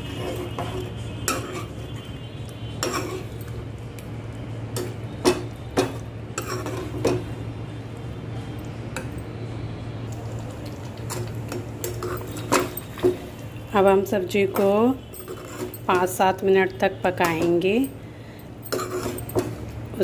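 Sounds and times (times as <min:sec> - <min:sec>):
metal ladle scraping pan: 0:00.0 - 0:03.6, 0:04.8 - 0:07.3, 0:11.1 - 0:16.4, 0:18.6 - 0:19.7.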